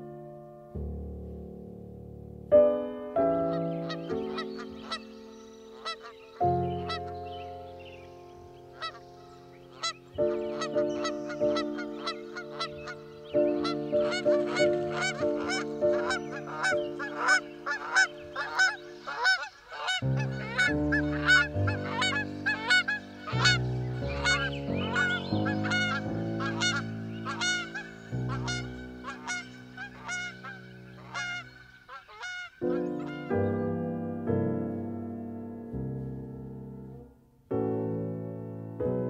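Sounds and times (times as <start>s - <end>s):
slow keyboard chords: 0.0s - 19.4s, 20.0s - 31.6s, 32.6s - 39.0s
waterfowl calling: 3.5s - 33.6s.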